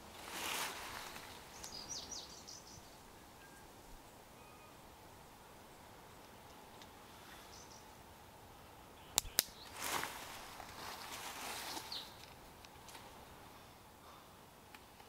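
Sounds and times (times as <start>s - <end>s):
rustling through leaves: 0.0s - 3.9s, 9.6s - 13.7s
faint bird chirps: 1.5s - 7.9s
sharp snaps: 9.1s - 9.8s.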